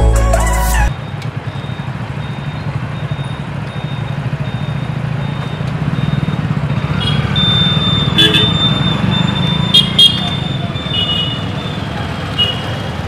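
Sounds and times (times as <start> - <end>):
traffic rumble: 0.9 - 13.0
vehicle horn: 8.2 - 8.6, 9.7 - 10.3.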